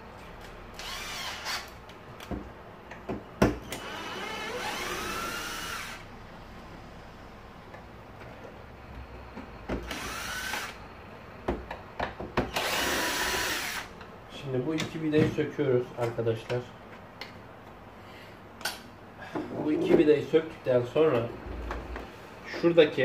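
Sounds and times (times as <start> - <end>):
electric screwdriver whirring: 0.8 - 1.8, 3.7 - 6.0, 9.8 - 10.8, 12.5 - 13.9.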